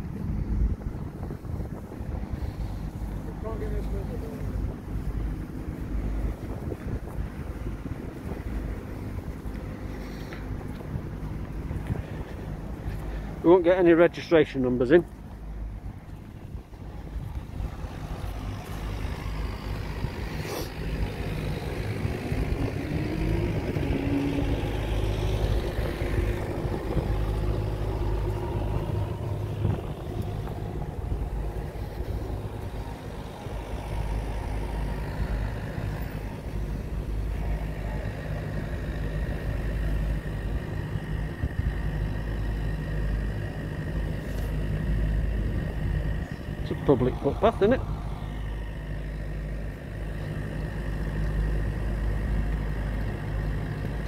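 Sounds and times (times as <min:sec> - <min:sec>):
road traffic rumble: 0:00.0 - 0:54.0
engine note rising in pitch: 0:15.8 - 0:54.0.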